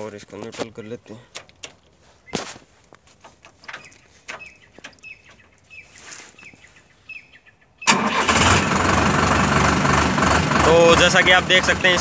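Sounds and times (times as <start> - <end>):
birds chirping: 0.0 - 8.0
tractor diesel engine starting: 7.8 - 12.0.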